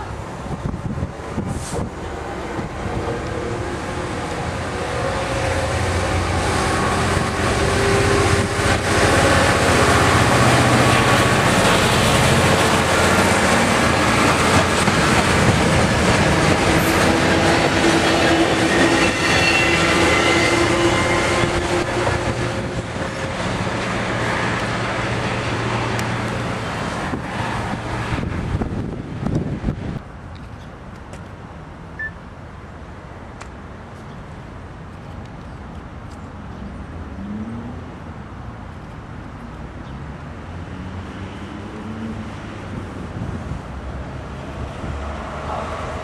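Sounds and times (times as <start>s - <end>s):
diesel locomotive engines: 0.0s - 33.6s, 42.2s - 46.0s
train wheels clicking on rails: 5.3s - 27.8s.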